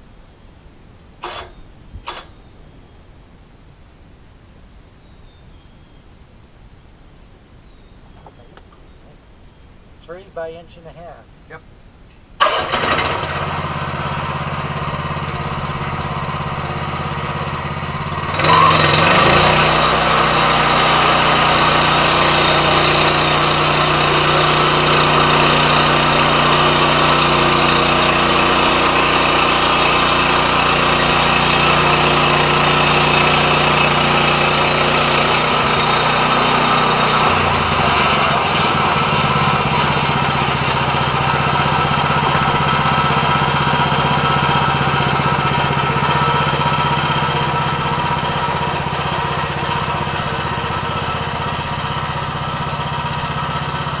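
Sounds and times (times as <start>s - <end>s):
band blade hissing through log: 1.2s - 2.4s, 19.4s - 26.4s
sawmill engine running: 1.2s - 2.5s, 12.4s - 54.0s.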